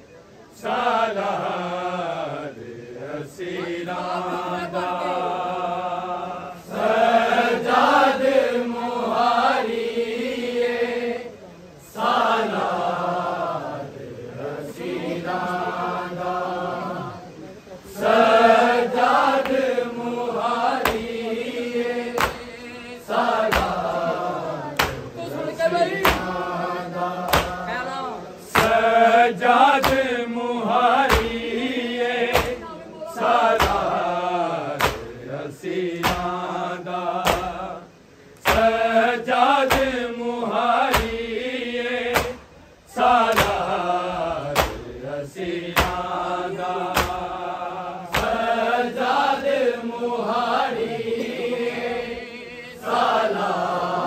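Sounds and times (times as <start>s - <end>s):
men chanting in unison: 0.5s - 54.0s
chest-beating slaps: 20.8s - 21.1s, 22.1s - 22.6s, 23.4s - 24.1s, 24.8s - 25.2s, 25.9s - 26.4s, 27.3s - 27.7s, 28.5s - 28.9s, 29.8s - 30.1s, 31.0s - 31.5s, 32.3s - 32.7s, 33.6s - 34.0s, 34.8s - 35.2s, 36.0s - 36.4s, 37.2s - 37.6s, 38.4s - 38.8s, 39.6s - 40.0s, 40.9s - 41.2s, 42.1s - 42.5s, 43.2s - 43.8s, 44.4s - 45.0s, 45.7s - 46.2s, 46.9s - 47.4s, 48.1s - 48.5s.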